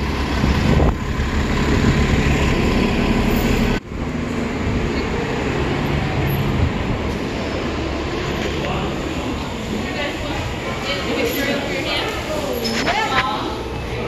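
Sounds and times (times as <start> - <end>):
bus engine running: 0.0 - 12.4
street traffic noise: 0.0 - 14.0.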